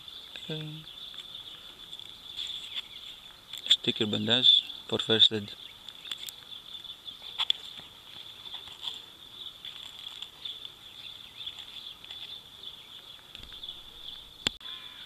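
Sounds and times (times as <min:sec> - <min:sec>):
insects chirping: 0:00.0 - 0:15.0
faint clicks and rustles: 0:05.8 - 0:14.6.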